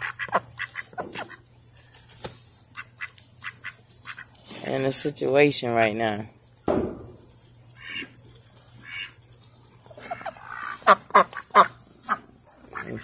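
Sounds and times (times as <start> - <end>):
ducks quacking: 0.0 - 1.5, 2.7 - 4.4, 7.8 - 8.2, 8.8 - 9.2, 9.9 - 13.0.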